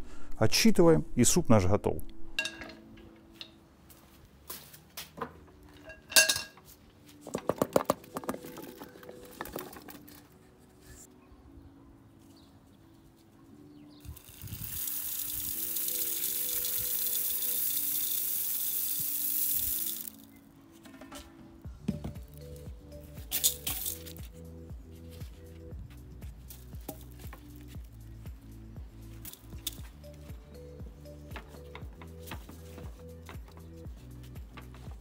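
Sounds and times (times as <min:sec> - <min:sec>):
background music: 0:00.0 - 0:35.0
ingredients rattling into metal pot: 0:14.2 - 0:20.2, 0:23.3 - 0:24.2
water pouring into pot: 0:14.2 - 0:20.2.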